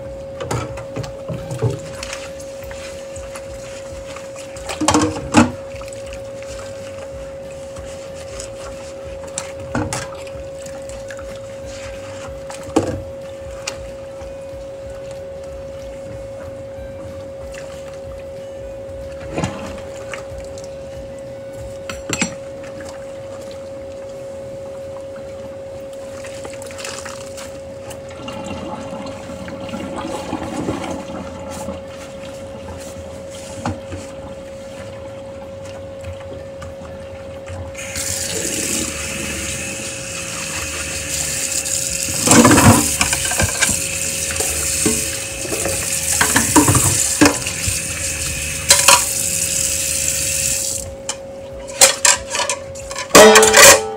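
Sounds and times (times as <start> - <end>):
tap water running: 0.0 - 16.6, 28.0 - 31.9, 35.6 - 51.2
dishes scrubbed in sink: 37.9 - 50.6.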